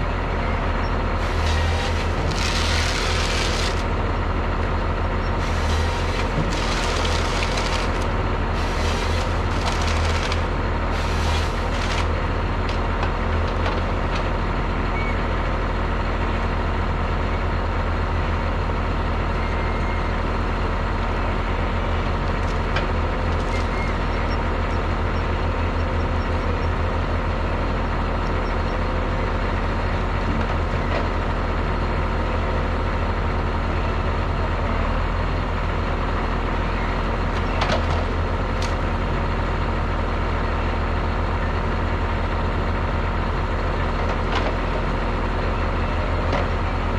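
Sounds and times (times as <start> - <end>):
diesel engines running: 0.0 - 46.9
wood cracking and splintering: 1.3 - 3.9, 5.4 - 12.1.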